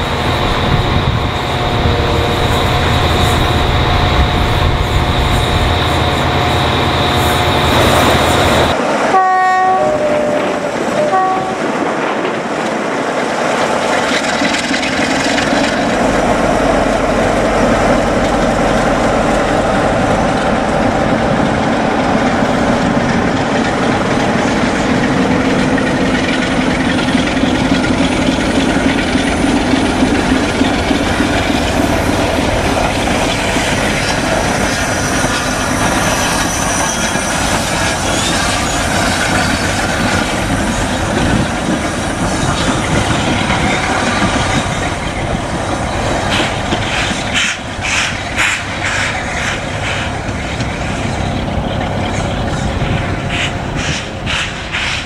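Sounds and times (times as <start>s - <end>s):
train wheels rolling on track: 0.0s - 55.0s
two-tone train horn: 9.1s - 11.8s
diesel engine humming: 15.7s - 34.4s.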